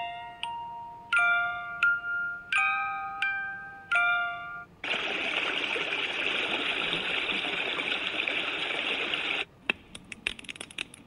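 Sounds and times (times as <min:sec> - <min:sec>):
rushing water white noise: 0:04.8 - 0:09.5.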